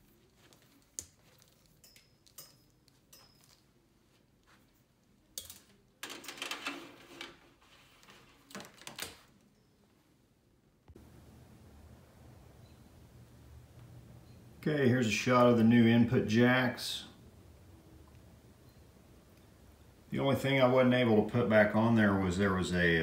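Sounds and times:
rustling and rattling: 5.6s - 9.4s.

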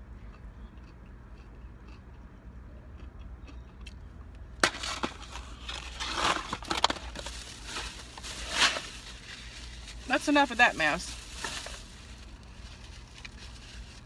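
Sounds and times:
food wrappers crinkling: 4.7s - 14.0s.

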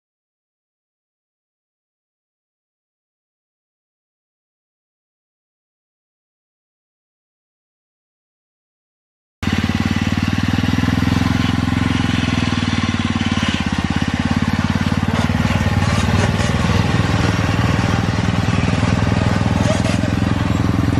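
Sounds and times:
riding mower engine running: 9.4s - 20.9s.

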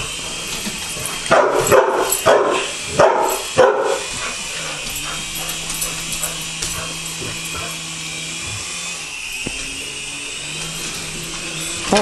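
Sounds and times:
dog barking: 1.3s - 4.1s.

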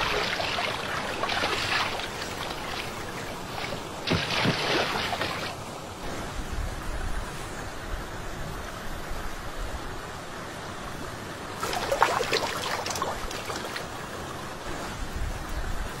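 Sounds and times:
fish splashing in water: 0.0s - 5.6s, 11.6s - 14.1s
water noise: 0.0s - 16.0s
wind: 0.0s - 16.0s.

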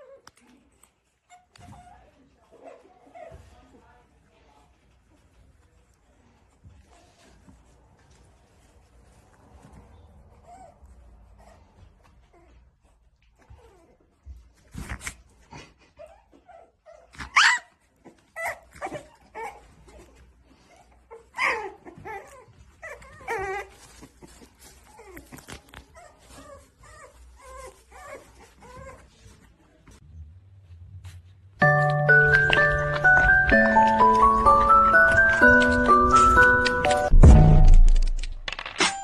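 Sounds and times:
puppies whining and yipping: 15.9s - 29.2s, 32.1s - 37.1s
puppy yelps: 16.0s - 20.1s, 20.7s - 24.4s.

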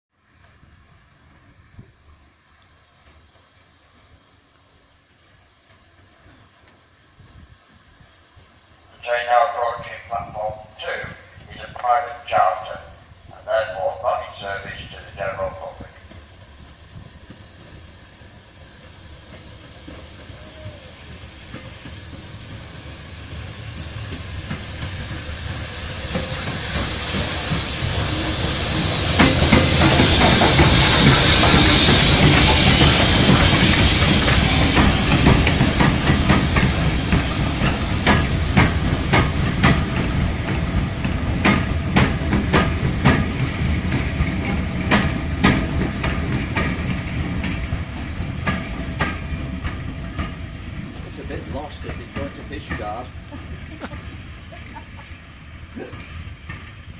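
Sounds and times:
hiss of steam: 0.2s - 56.9s
steam locomotive running past: 0.2s - 56.9s
wheels clicking over rail joints: 28.8s - 56.9s.

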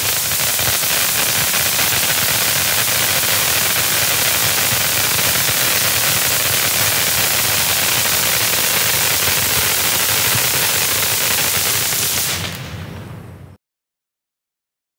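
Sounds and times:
firework fountain hissing: 0.0s - 13.0s.

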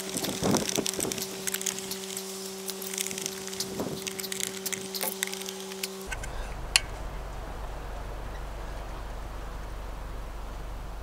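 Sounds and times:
screwdriver clicking and creaking: 0.0s - 6.9s
steady low hum: 0.0s - 11.0s.

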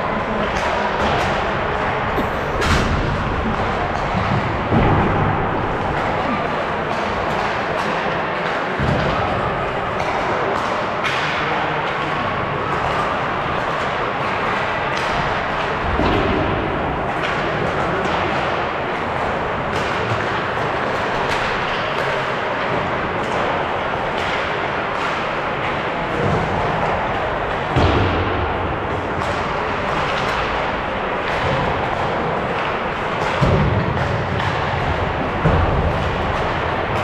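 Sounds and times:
arena noise: 0.0s - 11.1s.

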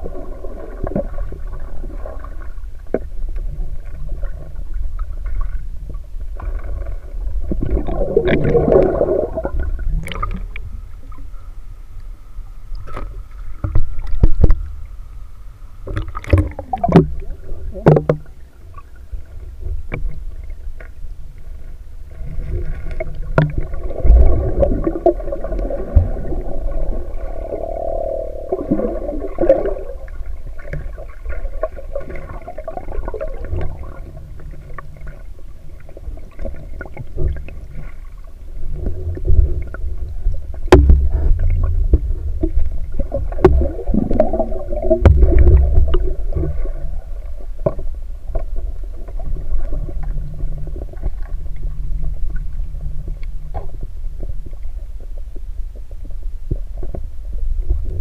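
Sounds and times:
gurgling bubbles: 0.0s - 3.0s, 6.4s - 10.7s, 15.9s - 19.0s, 22.2s - 35.3s, 36.2s - 47.8s
low underwater rumble: 0.0s - 58.0s.

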